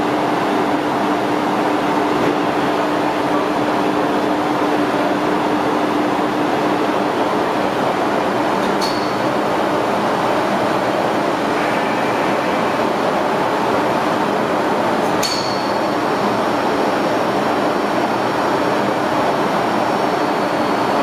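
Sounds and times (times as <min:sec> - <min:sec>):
sharp click with high ring: 0:15.2 - 0:15.8.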